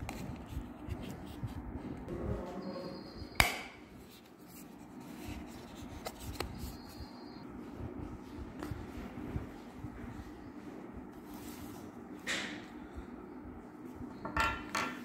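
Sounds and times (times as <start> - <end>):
faint high steady tone: 6.6 - 7.5.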